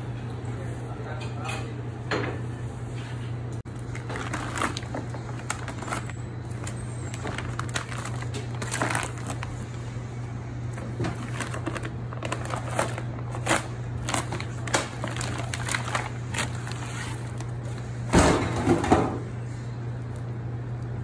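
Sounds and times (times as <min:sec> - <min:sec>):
steady low hum: 0:00.0 - 0:21.0
plastic bag crinkling: 0:03.7 - 0:09.9, 0:10.7 - 0:17.9.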